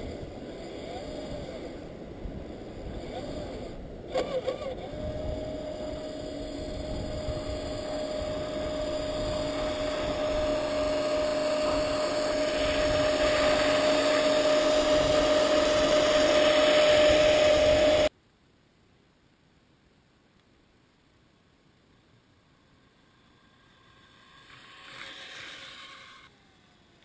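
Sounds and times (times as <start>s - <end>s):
electric motor and gears whining: 0.0s - 18.1s, 22.7s - 27.0s
rushing noise: 4.4s - 18.1s.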